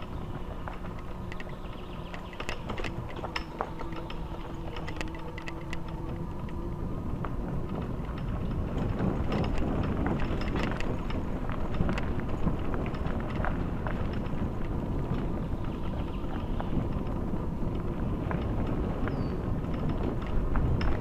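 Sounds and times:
bicycle tyres rumbling: 0.0 - 21.0
bike rattling and clicking: 0.0 - 21.0.

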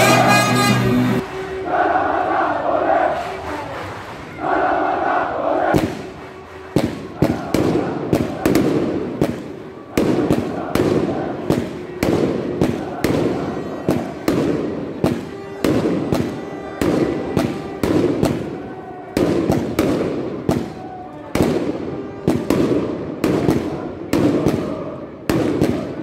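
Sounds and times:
fireworks bangs with crackling: 5.7 - 26.0.

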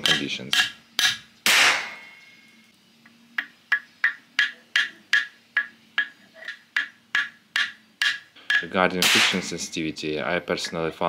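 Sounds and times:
hammer tapping on steel: 0.0 - 1.2, 3.4 - 9.6
sharp explosive bang: 1.4 - 2.2, 9.0 - 9.6.

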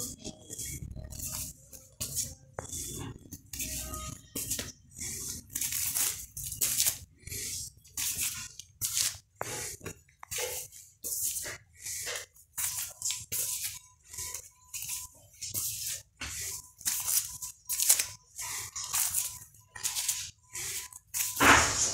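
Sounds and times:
plastic record sleeves crinkling: 3.0 - 7.1, 16.8 - 21.9.

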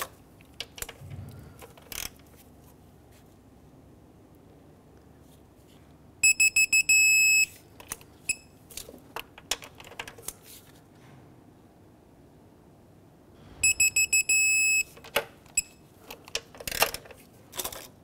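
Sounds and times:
torque wrench beeping: 13.6 - 14.9.

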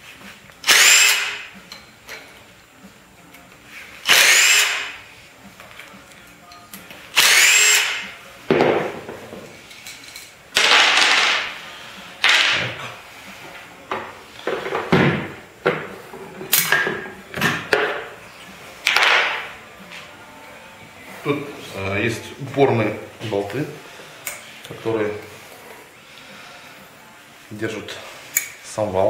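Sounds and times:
cordless drill motor whine: 0.6 - 1.4, 4.1 - 4.9, 7.2 - 8.0.

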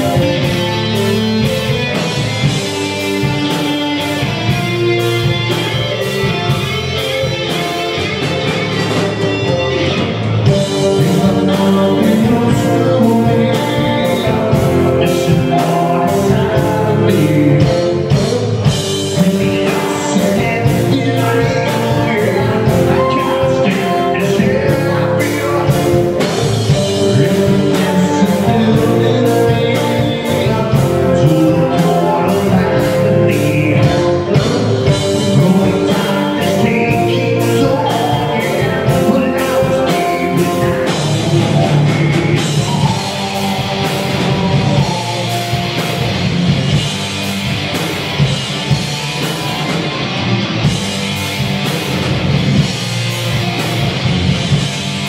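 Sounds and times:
live rock band playing: 0.0 - 55.0
male lead vocal singing: 10.5 - 46.1.

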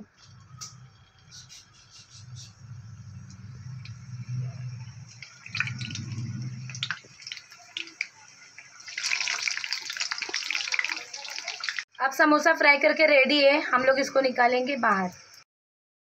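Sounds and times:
food deep-frying in oil: 3.3 - 12.0.

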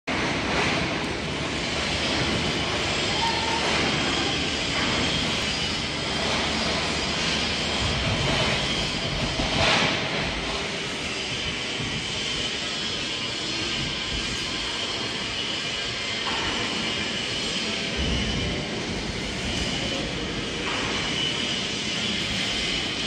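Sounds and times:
machinery running: 0.1 - 23.0.

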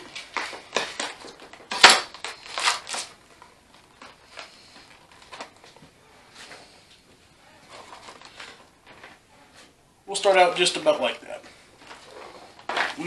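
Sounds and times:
plastic film crinkling: 0.0 - 7.0, 7.6 - 9.2, 10.2 - 13.0
knife cutting plastic film: 0.1 - 3.2.

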